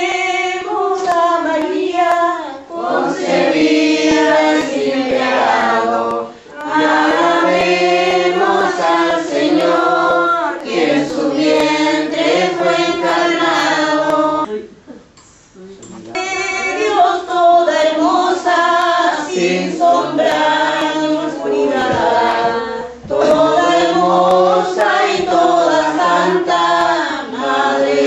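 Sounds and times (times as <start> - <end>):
voices singing a hymn in unison: 0.0 - 14.6, 16.2 - 28.0.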